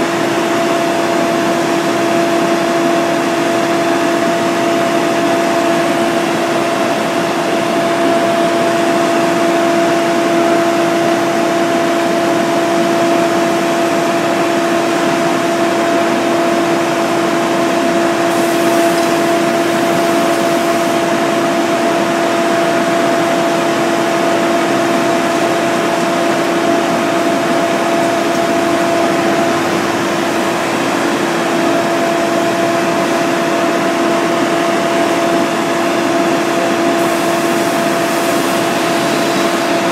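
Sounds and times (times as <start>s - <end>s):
engine droning hum: 3.1s - 39.9s
even hiss: 18.3s - 21.0s.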